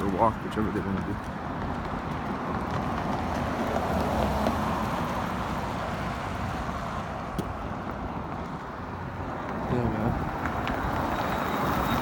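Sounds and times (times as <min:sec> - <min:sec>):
car passing by: 0:02.2 - 0:07.6, 0:09.2 - 0:12.0.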